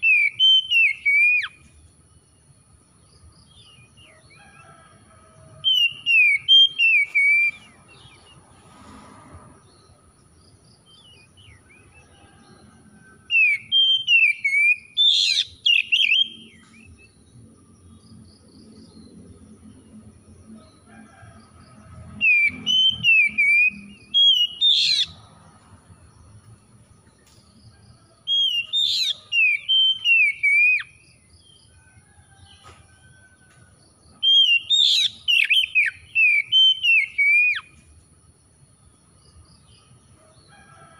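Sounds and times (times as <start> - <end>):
bird singing whistled notes: 0.0 - 1.7, 5.6 - 8.2, 13.3 - 17.2, 22.2 - 25.2, 28.3 - 31.1, 34.2 - 37.8.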